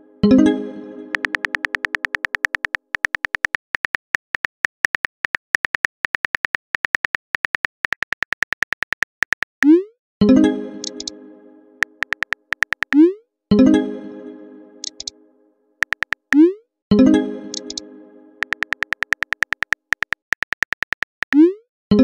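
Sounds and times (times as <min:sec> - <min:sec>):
phone keyboard clicks: 0:01.1 - 0:09.6, 0:10.8 - 0:11.1, 0:11.8 - 0:13.0, 0:14.8 - 0:15.1, 0:15.8 - 0:16.4, 0:17.5 - 0:17.8, 0:18.4 - 0:21.4.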